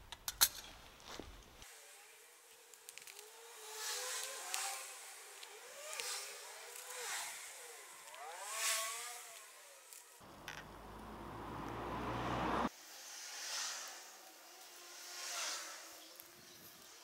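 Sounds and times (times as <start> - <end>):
vehicles passing: 3.3 - 16.3.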